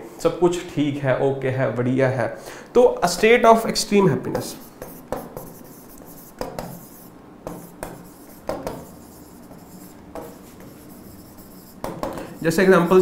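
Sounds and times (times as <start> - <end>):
pen scratching on a board: 4.4 - 13.0.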